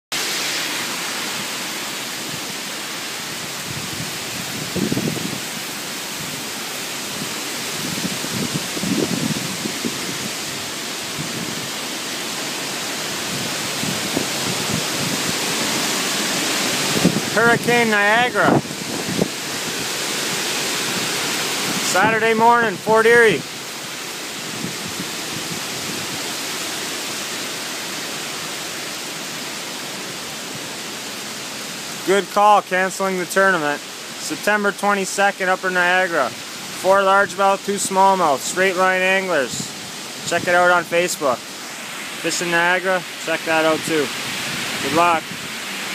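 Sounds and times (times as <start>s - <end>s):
heavy rain pouring: 0.1s - 45.9s
wind gust on microphone: 3.3s - 11.8s, 13.0s - 23.5s, 24.4s - 26.5s, 43.7s - 45.7s.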